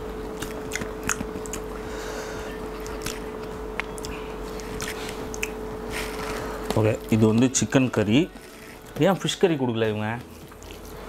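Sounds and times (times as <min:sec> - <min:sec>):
steady hum: 0:00.0 - 0:11.0
mouth smacks: 0:00.4 - 0:01.7, 0:04.8 - 0:05.6.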